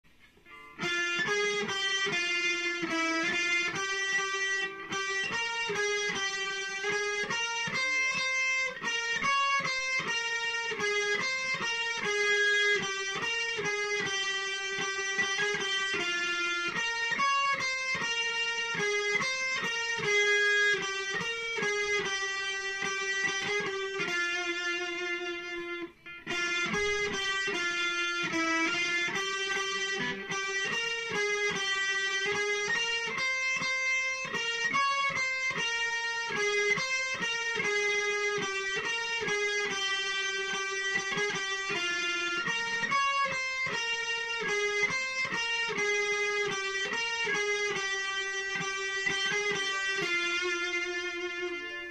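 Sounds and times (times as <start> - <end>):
electric guitar melody: 0.0 - 51.9.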